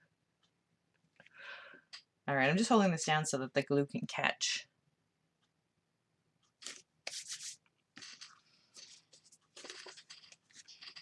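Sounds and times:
hands rustling paper and card: 6.6 - 11.0.

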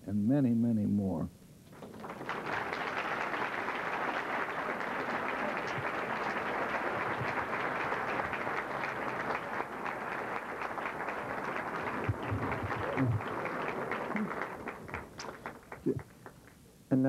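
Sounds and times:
audience applauding: 1.7 - 16.6.

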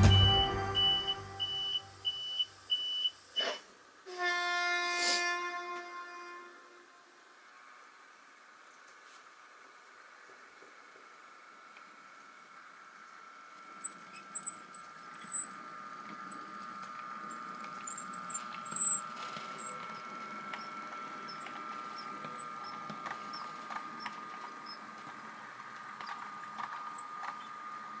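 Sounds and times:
sharp high squeaks: 0.0 - 2.5, 13.6 - 15.6, 17.8 - 25.2
model train motor whine: 0.0 - 28.0.

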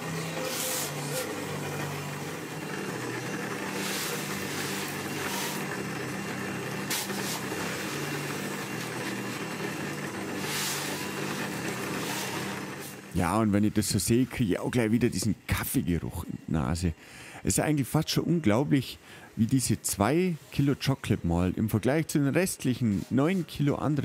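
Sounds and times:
malt mill motor hum: 0.0 - 17.1
grinding hiss: 0.0 - 17.6.

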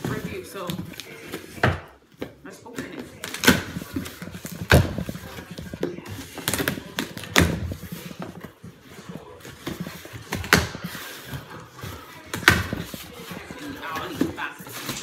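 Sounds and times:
cardboard rustling: 0.0 - 15.0.

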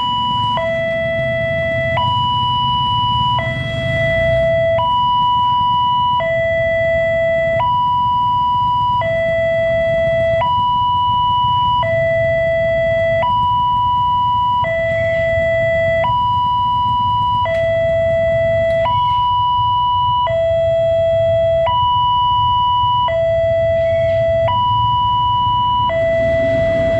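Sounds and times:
two-tone level crossing alarm: 0.0 - 26.9.

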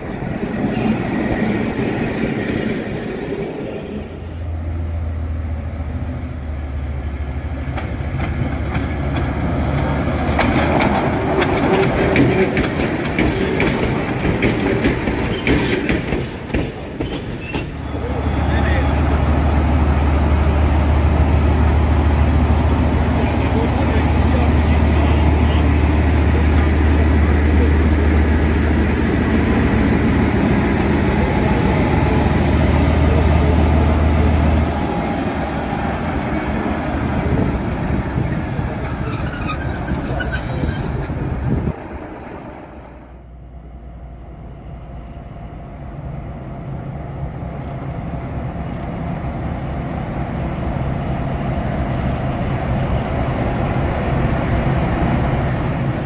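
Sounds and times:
approaching locomotive rumble: 0.0 - 56.0
diesel locomotive engine drone: 0.0 - 56.0
high squeal: 17.1 - 18.9, 38.9 - 41.2.

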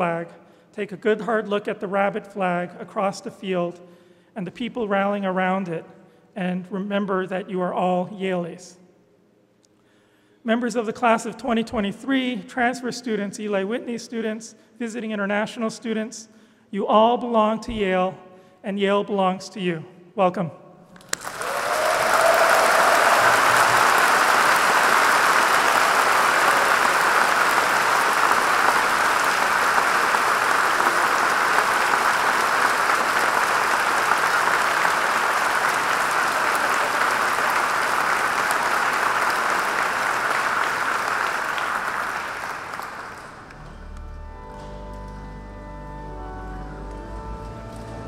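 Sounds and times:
large audience applauding: 21.0 - 44.2.

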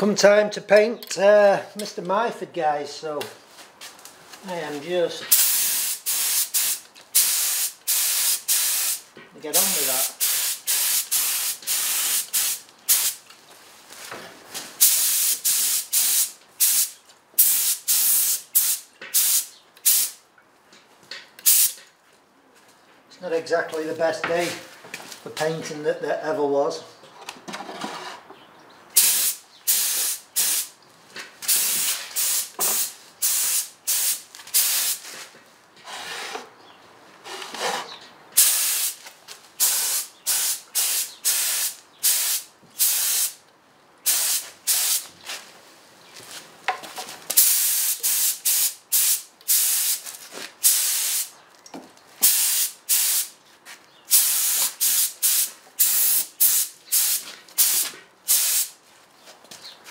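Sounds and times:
spray gun hissing bursts: 5.3 - 9.0, 9.6 - 13.2, 14.8 - 20.2, 21.4 - 21.8, 29.0 - 30.7, 31.5 - 35.0, 38.4 - 39.0, 39.6 - 43.4, 44.1 - 45.0, 47.4 - 50.0, 50.6 - 51.3, 52.2 - 53.3, 54.1 - 58.8.

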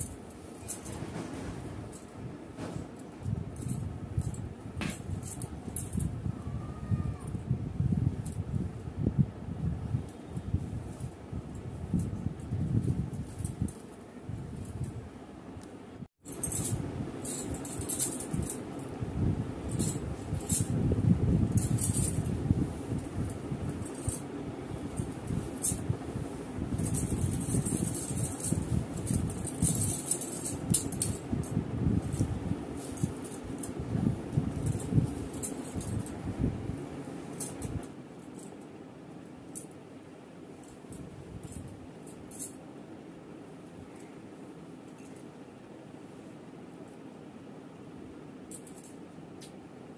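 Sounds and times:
glass bangles jingling: 16.3 - 18.6, 26.8 - 33.8, 34.5 - 36.2
hair rustling while combed: 19.6 - 36.4.

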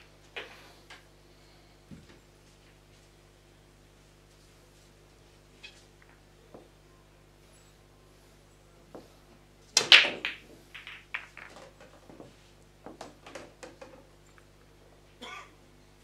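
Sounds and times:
pool balls clacking: 9.7 - 14.5
pool balls clicking: 9.7 - 14.5.

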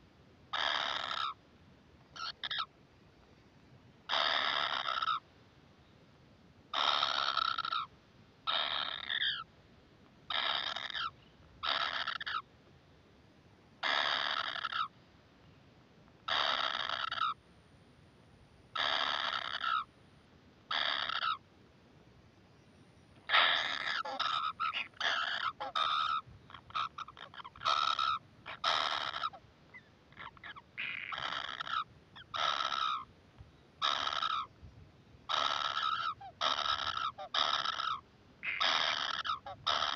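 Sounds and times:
nestlings harsh begging calls: 0.5 - 1.4, 2.2 - 2.7, 4.1 - 5.2, 6.8 - 7.9, 8.5 - 9.5, 10.3 - 12.4, 13.8 - 14.9, 16.3 - 17.4, 18.8 - 19.9, 20.7 - 21.4, 23.3 - 33.1, 33.8 - 34.5, 35.3 - 39.9.

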